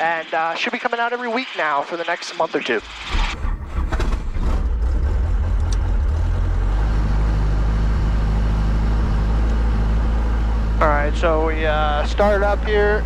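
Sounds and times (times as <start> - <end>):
helicopter engine idling: 8.0 - 13.0.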